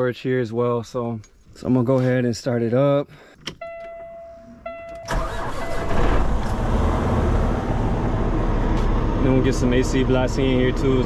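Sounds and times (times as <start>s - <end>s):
truck electronic beep: 3.6s - 6.1s
diesel engine starting and idling: 5.0s - 11.0s.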